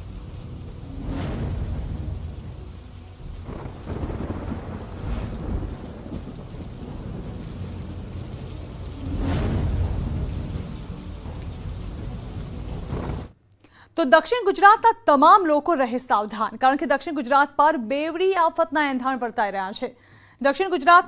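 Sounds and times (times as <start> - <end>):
heavy rain: 0.0 - 13.4
thunder rumbling: 0.0 - 13.4.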